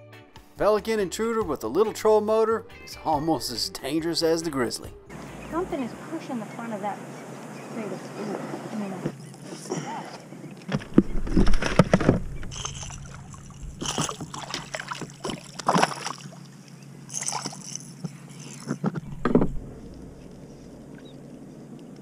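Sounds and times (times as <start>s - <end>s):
water splashing against boat hull: 9.8s - 21.2s.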